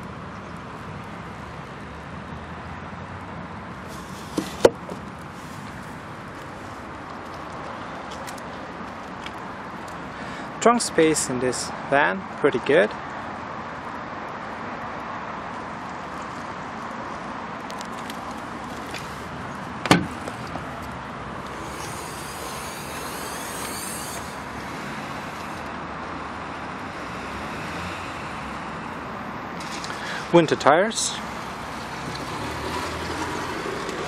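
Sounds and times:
outdoor background noise: 0:00.0 - 0:34.0
van tailgate latch clunking: 0:19.8 - 0:20.4.

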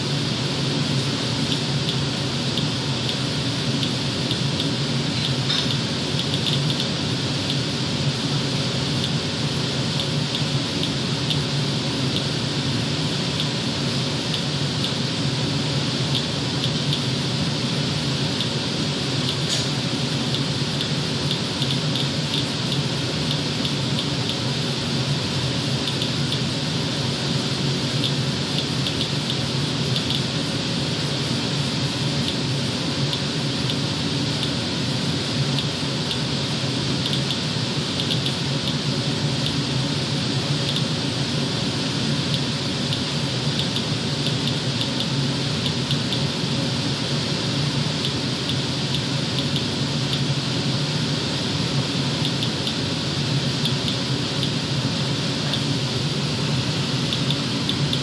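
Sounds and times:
steady hiss: 0:00.0 - 0:58.0
geiger counter clicking: 0:38.0 - 0:38.8.

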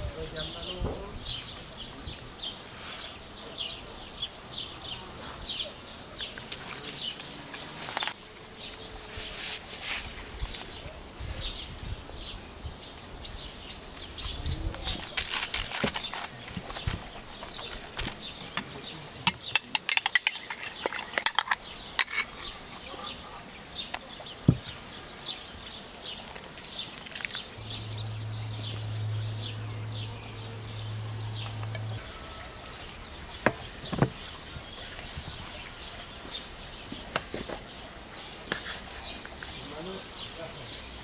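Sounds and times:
small birds chirping: 0:00.0 - 0:41.0
utensils clinking: 0:14.9 - 0:22.6.

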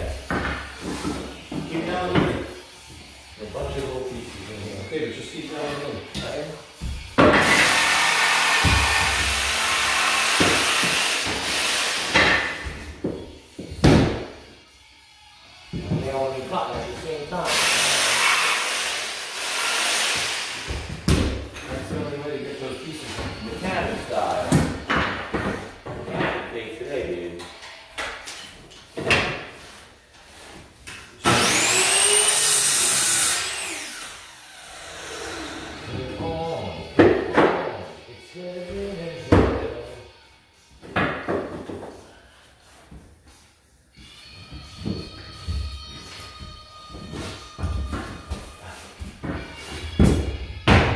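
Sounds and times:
loud steady hiss: 0:17.4 - 0:20.7
power tool motor whine: 0:31.2 - 0:35.8.

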